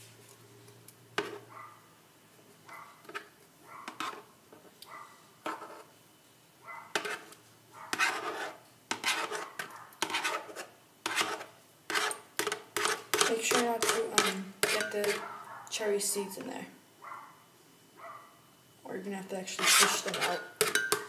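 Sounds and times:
knife scraping a plastic plate: 3.9 - 4.3, 5.4 - 5.9, 6.9 - 15.3, 19.5 - 20.9.

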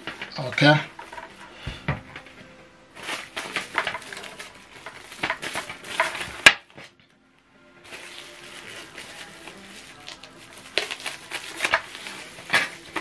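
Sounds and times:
plastic rustling: 0.0 - 7.0, 7.8 - 13.0.

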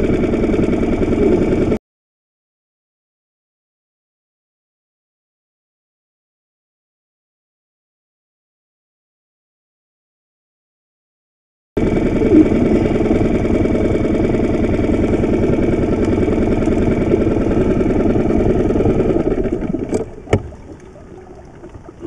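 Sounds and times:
outboard motor idling: 0.0 - 1.8, 11.8 - 22.0.

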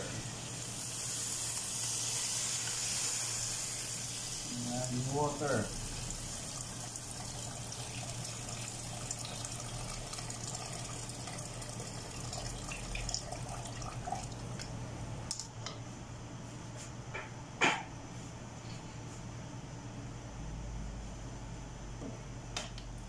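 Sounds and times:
water pouring into pot: 5.8 - 14.5.

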